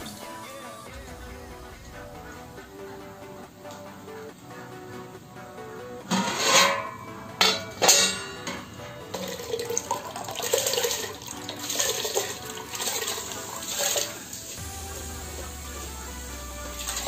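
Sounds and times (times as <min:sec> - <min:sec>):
background music: 0:00.0 - 0:17.0
metal cookware clanking: 0:06.0 - 0:14.1.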